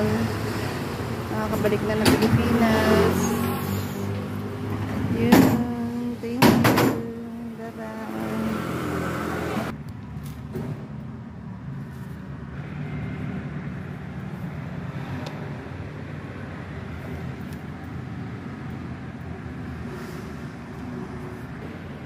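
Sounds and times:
traffic noise: 0:00.0 - 0:22.0
vehicle engine rumbling: 0:00.0 - 0:22.0.

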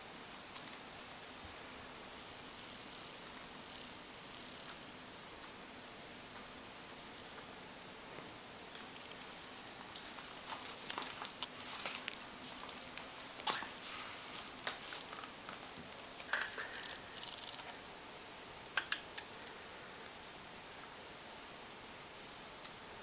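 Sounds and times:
light clicks and ticks: 0:00.3 - 0:01.2
fabric bed cover rustling: 0:09.8 - 0:15.3.

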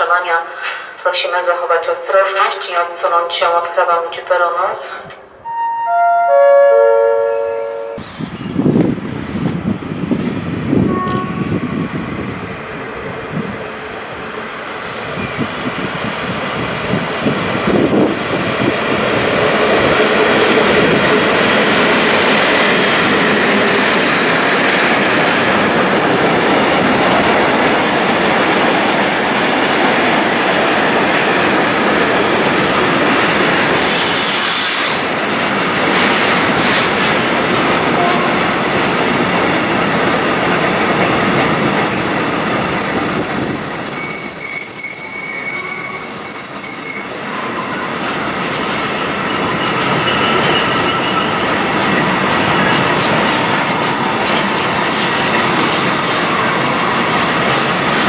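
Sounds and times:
train wheels rumbling on rails: 0:08.0 - 0:58.0
high wheel squeal: 0:40.2 - 0:58.0.

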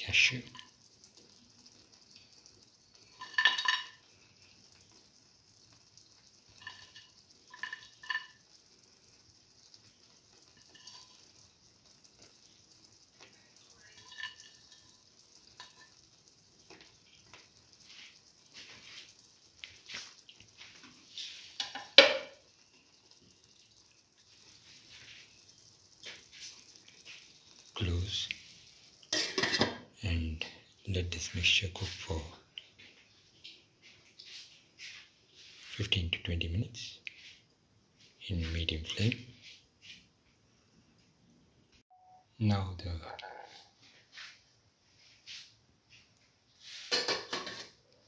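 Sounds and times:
spoon clinking on steel cookware: 0:03.2 - 0:04.0
knock and clatter: 0:46.9 - 0:47.8.

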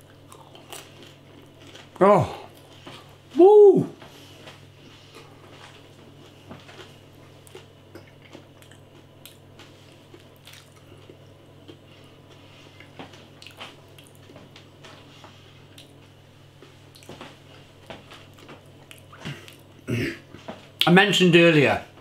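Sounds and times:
person chewing: 0:00.0 - 0:03.0, 0:06.6 - 0:14.4, 0:16.9 - 0:17.6, 0:18.2 - 0:19.8
steady low hum: 0:00.0 - 0:22.0.

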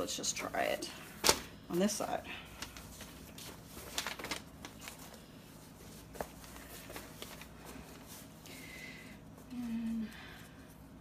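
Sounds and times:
paper rustling: 0:02.5 - 0:08.6.

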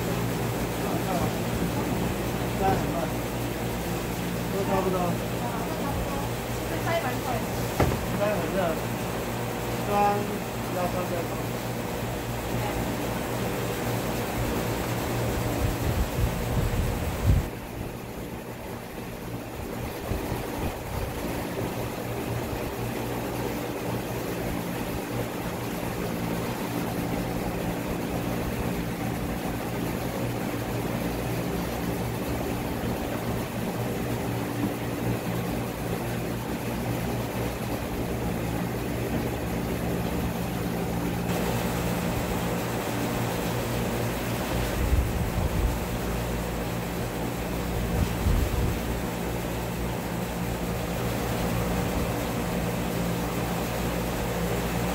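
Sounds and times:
mechanical drone with low hum: 0:00.0 - 0:54.9.

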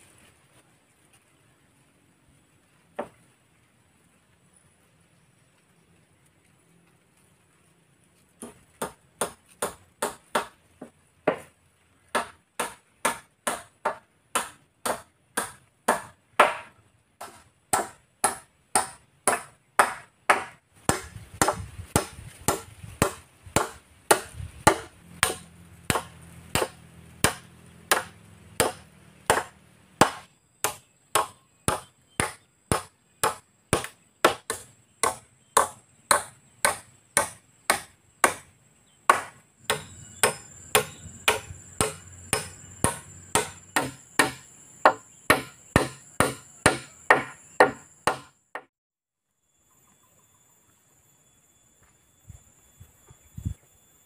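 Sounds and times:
hammer striking wood: 0:08.4 - 0:10.6, 0:11.3 - 0:11.5, 0:12.1 - 0:38.5, 0:39.1 - 0:48.7.

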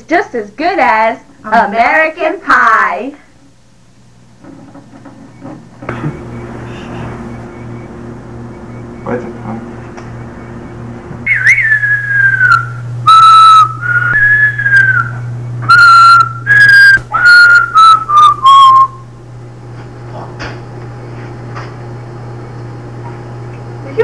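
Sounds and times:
low electrical hum: 0:00.0 - 0:24.0
person whistling tune: 0:11.3 - 0:19.0.

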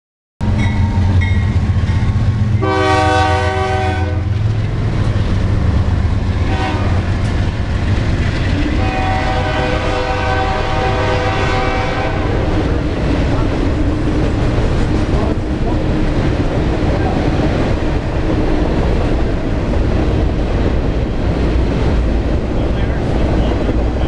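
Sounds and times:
train wheels clattering on rails: 0:00.4 - 0:03.6, 0:04.2 - 0:24.0
diesel locomotive engines droning: 0:00.4 - 0:24.0
train air horn: 0:02.6 - 0:04.4, 0:06.4 - 0:07.1, 0:08.6 - 0:12.5.

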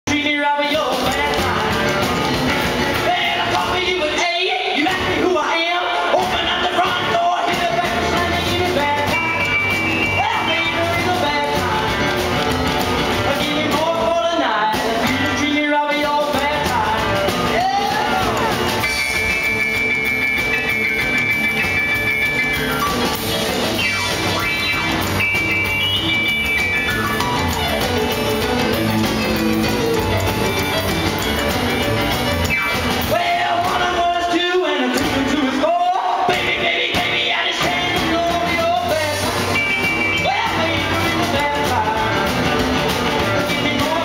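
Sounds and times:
man singing: 0:00.1 - 0:12.2, 0:13.2 - 0:19.2, 0:32.7 - 0:44.0
drum kit: 0:00.1 - 0:44.0
keyboard played as piano: 0:16.4 - 0:34.3.

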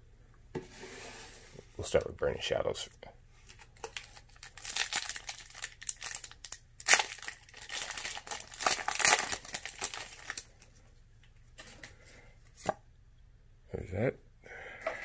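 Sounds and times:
foil wrapper crinkling: 0:03.5 - 0:10.7.

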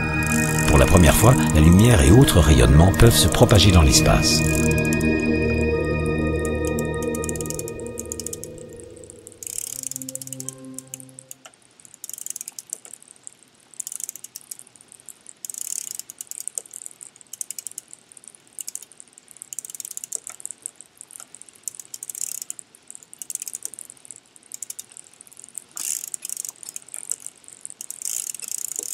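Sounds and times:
exercise bike clicking and rattling: 0:00.0 - 0:01.5, 0:11.4 - 0:28.9.

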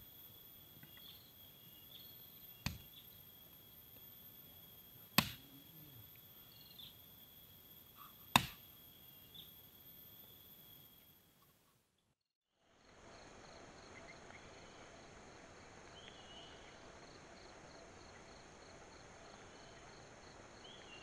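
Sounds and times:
high insect drone: 0:00.0 - 0:11.7, 0:12.6 - 0:21.0
hatchet chopping wood: 0:02.6 - 0:02.9, 0:05.1 - 0:05.5, 0:08.2 - 0:08.6.

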